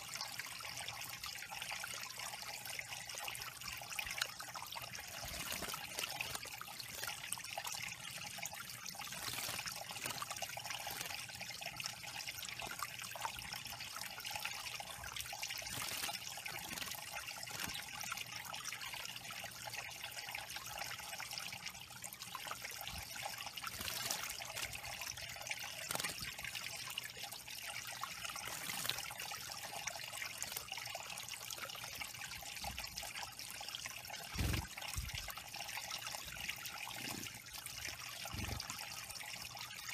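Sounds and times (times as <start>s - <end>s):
small waterfall trickling into pool: 0.0s - 39.9s
bird splashing in water: 8.6s - 11.4s, 23.0s - 26.8s.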